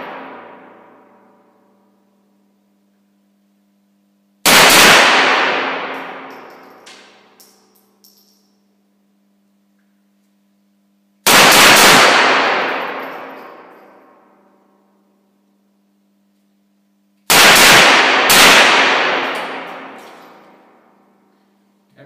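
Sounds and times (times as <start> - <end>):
pistol gunshots echoing: 4.5 - 7.1, 11.3 - 14.0, 17.3 - 20.6.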